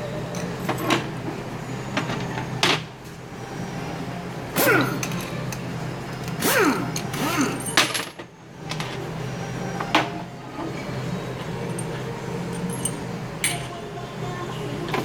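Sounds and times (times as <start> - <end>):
metal parts clicking and knocking: 11.6 - 13.7.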